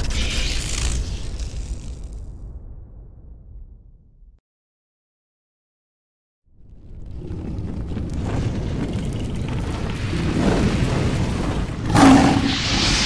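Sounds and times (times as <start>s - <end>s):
low rumble with crackles: 6.5s - 13.0s
whooshing boom: 10.0s - 13.0s.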